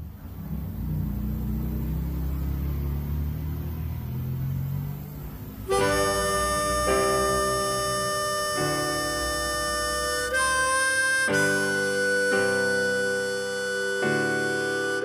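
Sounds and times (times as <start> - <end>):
harmonica playing chords: 5.6 - 15.0.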